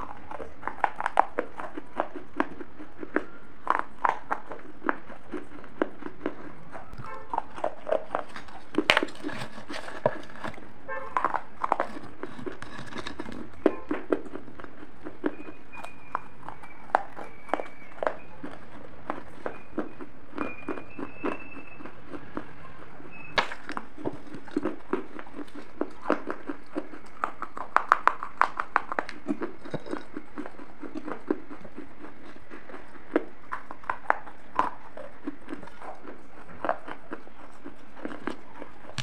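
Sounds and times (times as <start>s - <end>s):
crunching and chewing clay pieces: 0.0s - 39.0s.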